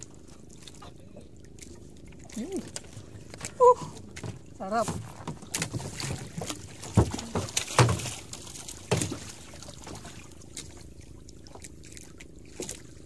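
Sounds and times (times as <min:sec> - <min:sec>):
water lapping against boat: 0:00.0 - 0:13.0.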